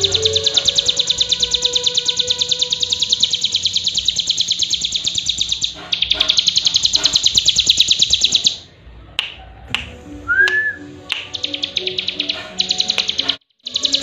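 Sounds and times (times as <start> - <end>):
songbird high-pitched trill: 0.0 - 8.6, 11.1 - 14.0
sharp clicks: 10.5 - 14.0.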